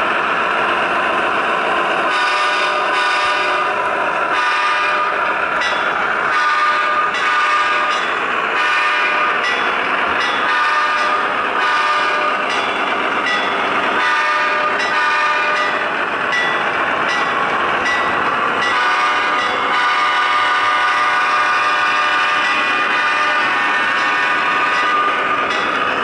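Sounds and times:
model locomotive diesel horn: 2.1s - 5.3s, 6.3s - 8.0s, 8.6s - 9.4s, 10.4s - 12.4s, 14.0s - 15.8s, 18.6s - 25.3s.

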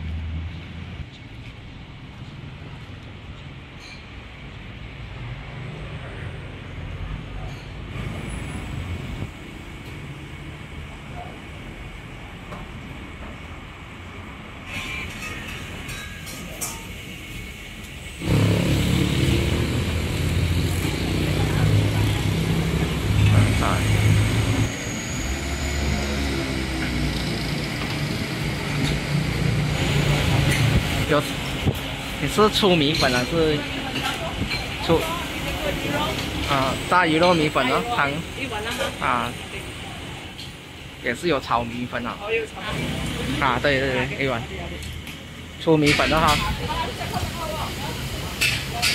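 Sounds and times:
road traffic rumble: 0.0s - 48.9s
vehicle engine running: 18.1s - 31.1s.

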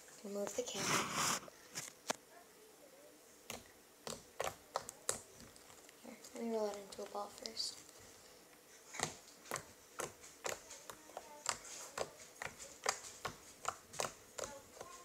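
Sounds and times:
slime popping: 3.5s - 5.8s.

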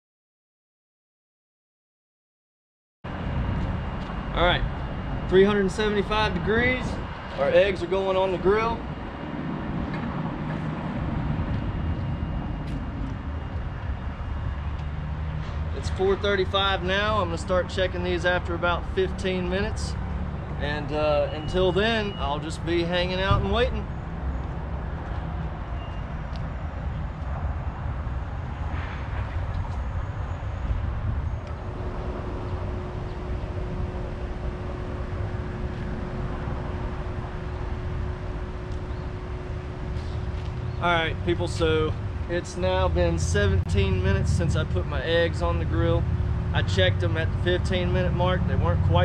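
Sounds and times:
low outdoor rumble: 3.1s - 49.0s
faint steady hum: 29.6s - 49.0s.

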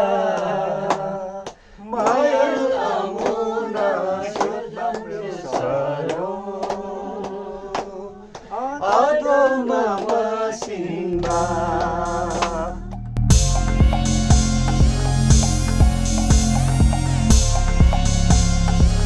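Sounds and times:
group singing a chant-like song: 0.0s - 19.0s
hand claps: 0.3s - 12.6s.

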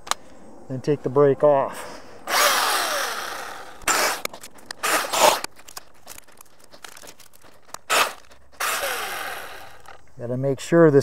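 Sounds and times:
chainsaw noisy bursts: 2.3s - 5.5s, 7.9s - 10.0s
electric chainsaw motor winding down: 2.3s - 5.5s, 6.9s - 10.0s.

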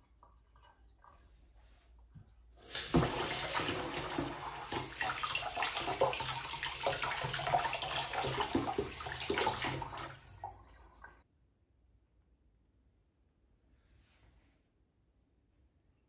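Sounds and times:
tap water splashing in sink: 2.2s - 11.2s.

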